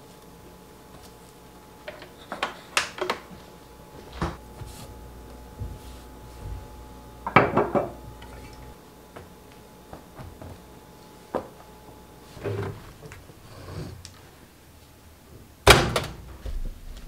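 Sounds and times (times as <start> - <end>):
washing machine door clunk: 15.7 - 16.6.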